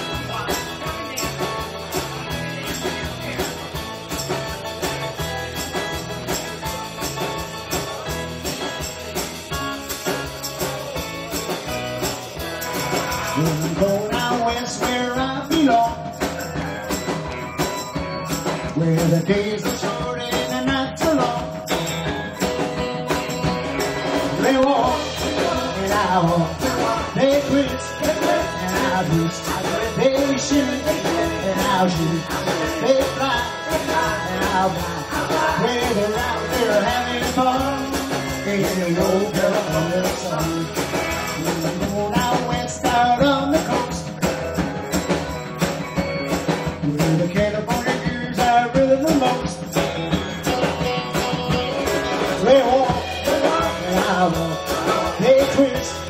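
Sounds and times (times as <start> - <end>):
lead vocal singing: 0.0 - 6.1, 10.0 - 17.3, 18.4 - 22.0, 24.1 - 44.7, 46.8 - 56.0
drum kit: 0.0 - 56.0
electric guitars: 0.0 - 56.0
backing singers: 51.2 - 56.0.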